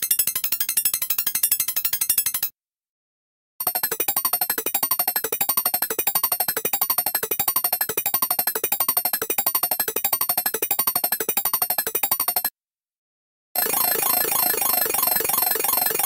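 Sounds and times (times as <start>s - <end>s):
rapid electronic beeps: 3.6s - 12.5s, 13.6s - 16.0s.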